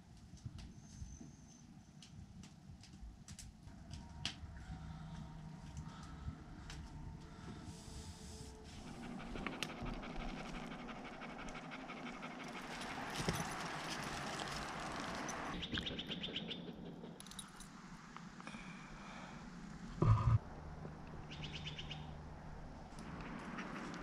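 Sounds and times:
dog panting: 0:07.2 - 0:15.6.

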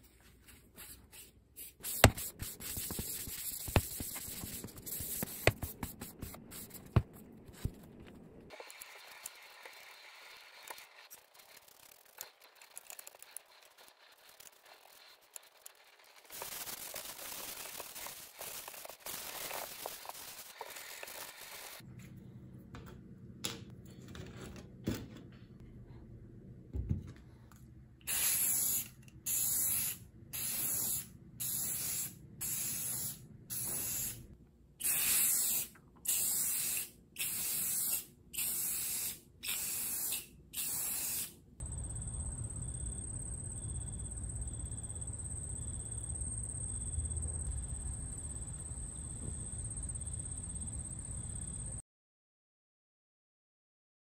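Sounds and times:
aerosol spray hissing bursts: 0:01.6 - 0:06.8, 0:28.1 - 0:34.2, 0:34.8 - 0:41.3.

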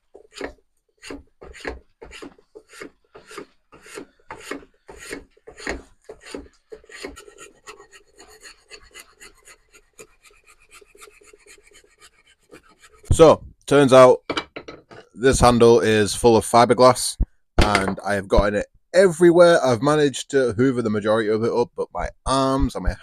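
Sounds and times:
hand tool shaving wood: 0:00.0 - 0:13.1.

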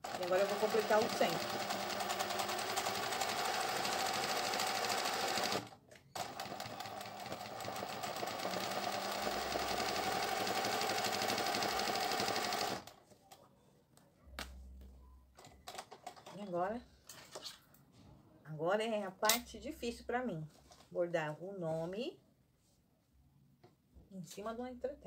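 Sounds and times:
sewing machine running fast: 0:00.0 - 0:12.9.

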